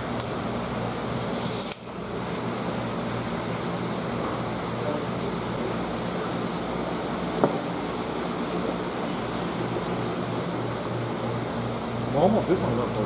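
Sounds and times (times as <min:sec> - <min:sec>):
indoor background hum: 0:00.0 - 0:13.0
short hiss: 0:01.3 - 0:01.9.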